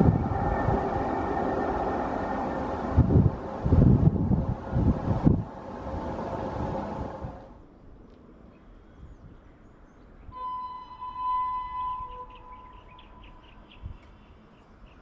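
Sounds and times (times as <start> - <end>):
distant train horn: 0.0 - 7.4, 10.3 - 13.4
train rumble: 0.0 - 7.6.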